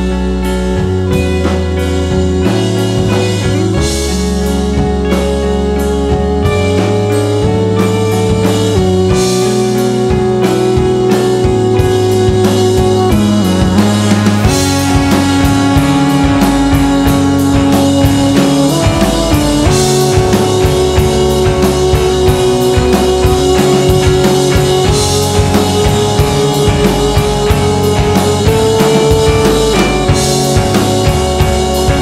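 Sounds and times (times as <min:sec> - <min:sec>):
driving drum beat: 0:00.0 - 0:32.0
rock backing music: 0:00.0 - 0:32.0.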